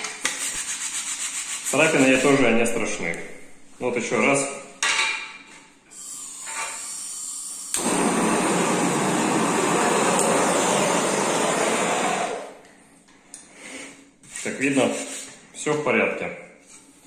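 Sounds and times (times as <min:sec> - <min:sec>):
gas hissing: 0:05.9 - 0:12.7
blowtorch igniter click: 0:07.7 - 0:09.1, 0:09.9 - 0:11.6
blowtorch flame rushing: 0:07.7 - 0:12.6.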